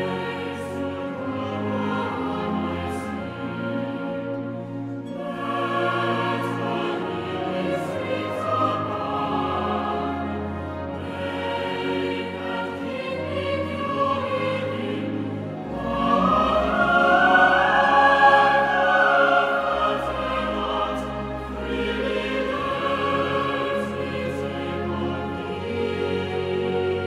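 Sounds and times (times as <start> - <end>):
choir singing long held notes: 0.0 - 27.0.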